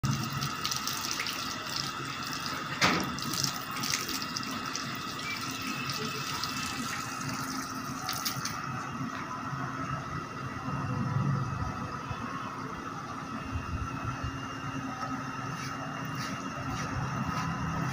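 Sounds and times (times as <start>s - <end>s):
water running from tap: 0.0s - 8.6s.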